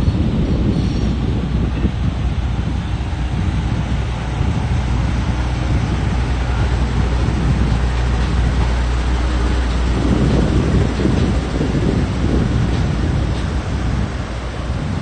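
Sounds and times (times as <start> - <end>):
street traffic: 0.0 - 15.0
truck diesel engine rumbling: 0.0 - 15.0
wind buffeting microphone: 0.0 - 15.0.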